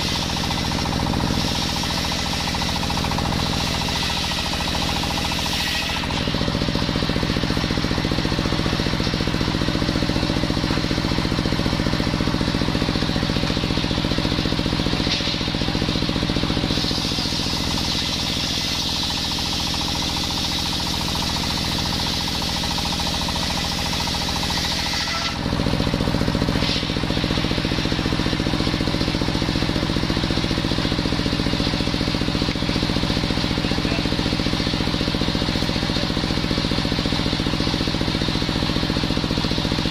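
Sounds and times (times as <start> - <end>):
saw blade cutting wood: 0.0 - 7.6, 14.8 - 28.3
stationary engine running: 0.0 - 39.9.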